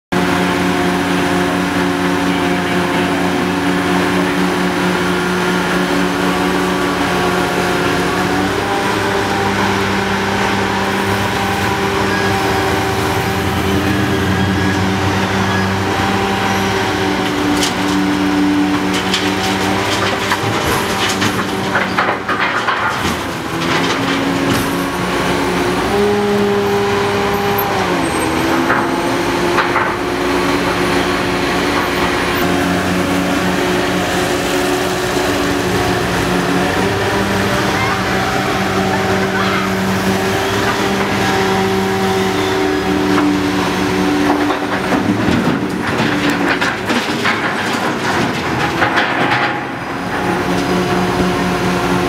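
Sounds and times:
excavator diesel engine running: 0.1 - 52.0
metal knocks and clunks: 18.8 - 24.9, 44.2 - 50.7.

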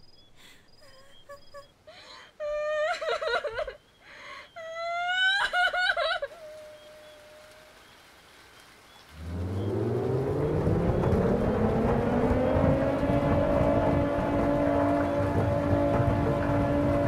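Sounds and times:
child sobbing: 0.8 - 7.5
low rumble: 9.2 - 17.0.

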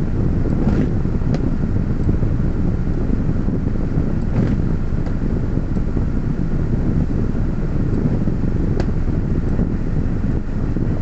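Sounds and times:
car idling inside cabin: 0.0 - 11.0.

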